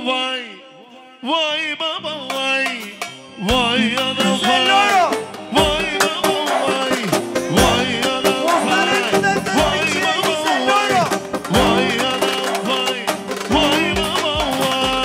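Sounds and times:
steady drum beats: 0:02.3 - 0:15.0
ornamented folk melody: 0:03.4 - 0:15.0.

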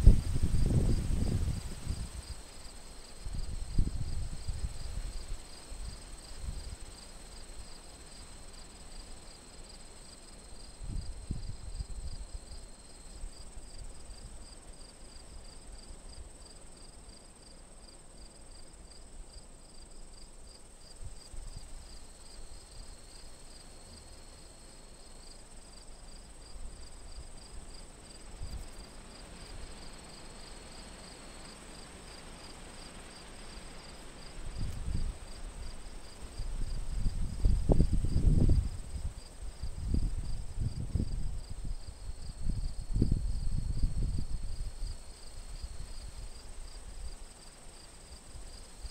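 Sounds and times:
wind rumbling on microphone: 0:00.0 - 0:02.4, 0:03.2 - 0:06.8, 0:10.8 - 0:12.4, 0:34.4 - 0:46.4
crickets chirping and trilling: 0:00.1 - 0:48.9.

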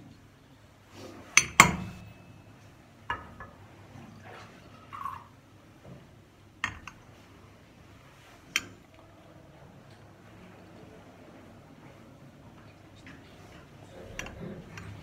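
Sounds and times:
glass and metal clinking: 0:01.4 - 0:03.3.

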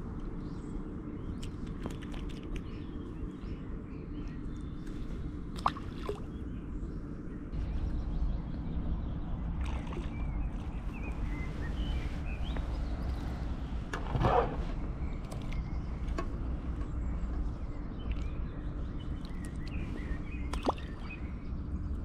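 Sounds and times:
faint birds chirping: 0:00.0 - 0:22.0
wind rumble on microphone: 0:00.0 - 0:22.0
rustling noise: 0:10.9 - 0:14.8.

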